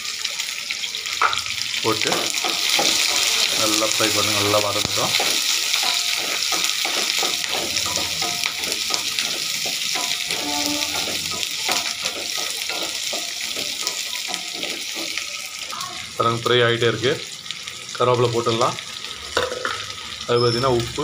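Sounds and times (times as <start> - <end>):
vegetables sizzling in hot oil: 0.0 - 21.0
spatula stirring and scraping: 2.0 - 15.6.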